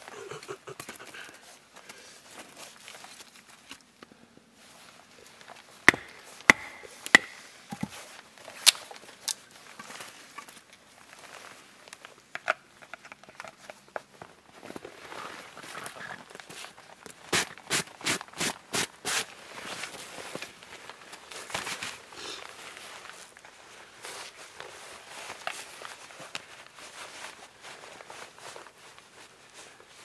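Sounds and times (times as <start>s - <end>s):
hatchet chopping sticks: 5.9s - 7.9s
wood knocking while handled: 5.9s - 8.0s.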